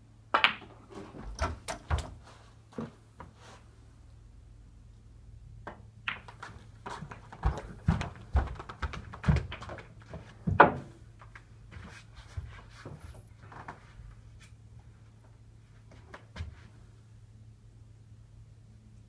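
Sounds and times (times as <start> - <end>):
snooker balls clicking: 0.3 - 0.8, 5.6 - 10.8.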